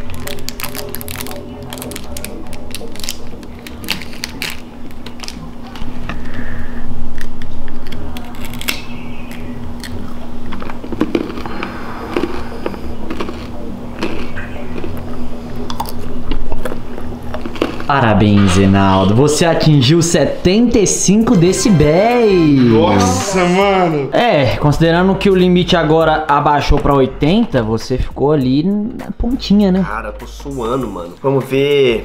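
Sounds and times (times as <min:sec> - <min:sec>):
peanut brittle crunching: 0:00.0 - 0:05.4, 0:07.2 - 0:18.0
plastic wrapper crinkling: 0:00.0 - 0:05.8
steady low hum: 0:00.0 - 0:32.0.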